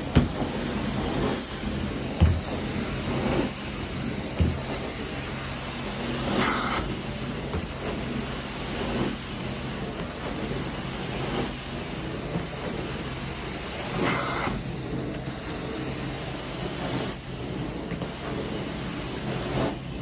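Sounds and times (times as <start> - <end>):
dull thumps: 0.0 - 0.6, 2.0 - 2.8, 4.3 - 4.9
extraction wand rushing hiss: 0.0 - 12.1.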